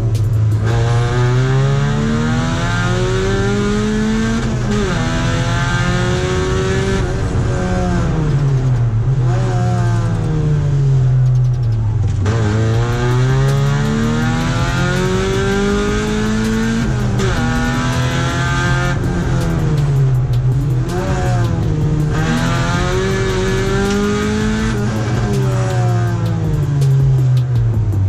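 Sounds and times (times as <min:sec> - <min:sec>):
race car engine revving hard: 0:00.4 - 0:11.2, 0:12.2 - 0:27.5.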